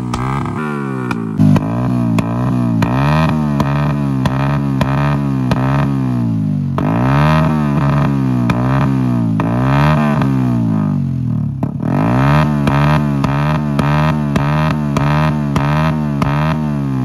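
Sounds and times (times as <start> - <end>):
exhaust pops: 0.0 - 5.9
motorcycle engine revving: 0.0 - 17.0.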